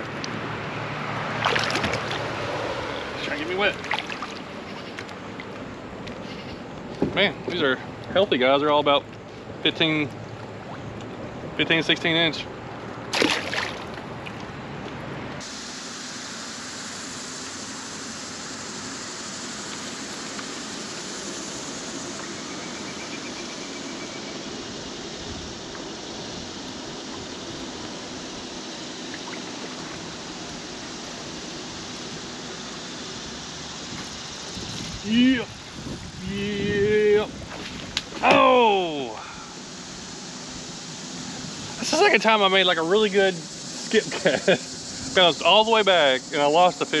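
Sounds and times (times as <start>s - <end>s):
water washing along kayak hull: 1.1s - 11.5s, 12.7s - 15.8s, 24.7s - 38.9s.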